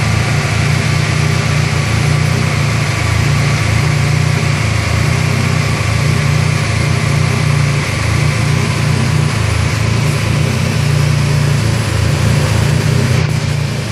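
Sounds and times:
rotary engine idling: 0.0 - 13.9.

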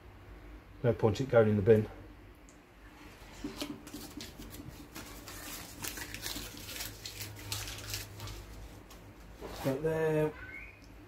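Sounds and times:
faint steady hum: 0.0 - 11.0
tape crackling and rustling: 3.1 - 10.0.

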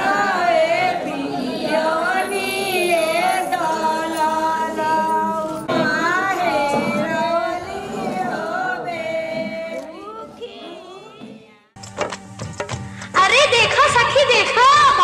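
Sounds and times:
music: 11.3 - 15.0.

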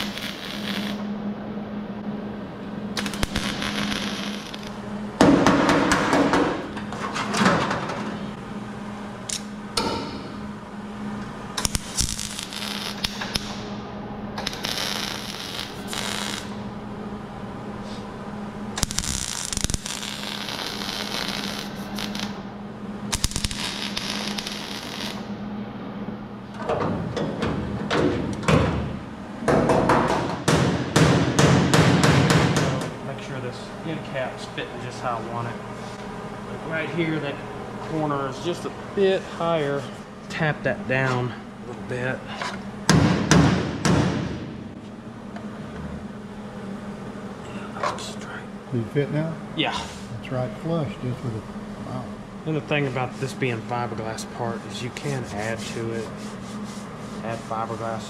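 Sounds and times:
welder crackling sizzle: 0.0 - 1.1, 3.0 - 4.8, 11.5 - 13.7, 14.4 - 16.6, 18.7 - 22.4, 23.1 - 25.3
low electrical hum: 0.0 - 58.0
sharp metallic knocks: 9.8 - 10.3.

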